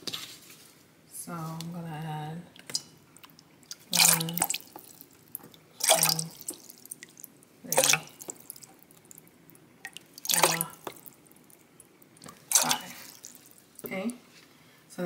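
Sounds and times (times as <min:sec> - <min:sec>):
liquid pouring into cup: 0:02.6 - 0:13.8.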